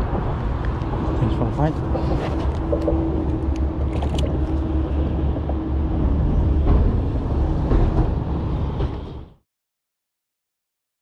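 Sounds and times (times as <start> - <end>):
low rumble of motor traffic: 0.0 - 9.4.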